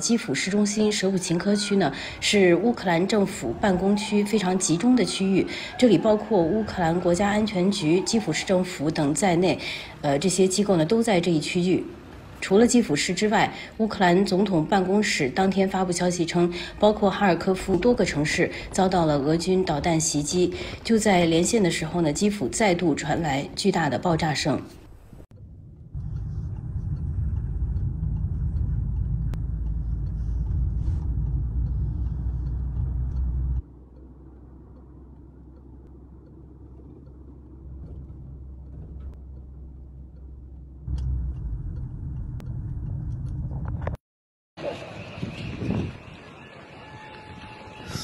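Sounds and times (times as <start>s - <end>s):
steady low hum: 24.8s - 44.0s
car road noise rumble: 24.9s - 44.0s.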